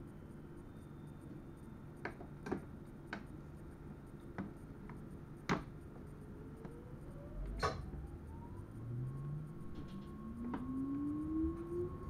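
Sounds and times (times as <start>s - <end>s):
faint rising whine: 6.0s - 12.0s.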